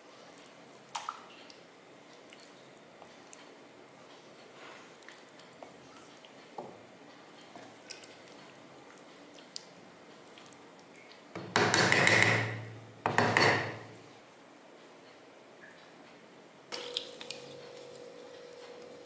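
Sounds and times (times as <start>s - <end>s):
low steady hum: 15.6s - 19.0s.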